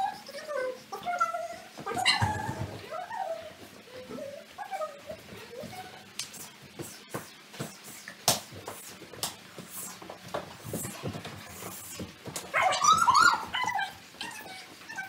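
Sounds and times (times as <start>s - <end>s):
dog whining and yelping: 0.0s - 5.9s, 12.5s - 15.0s.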